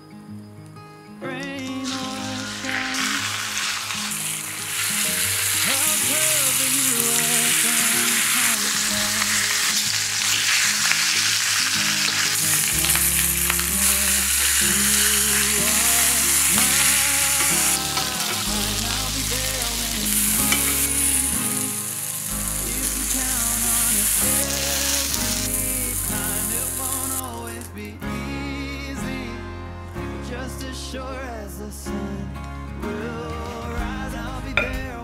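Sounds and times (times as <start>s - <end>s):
meat sizzling in a pan: 1.8s - 27.6s.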